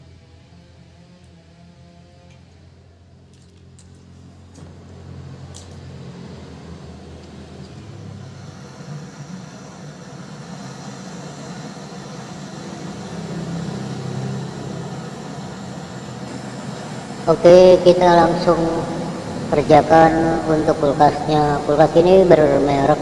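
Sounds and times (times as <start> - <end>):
low hum: 2.2 - 23.0
gas torch hissing: 5.2 - 23.0.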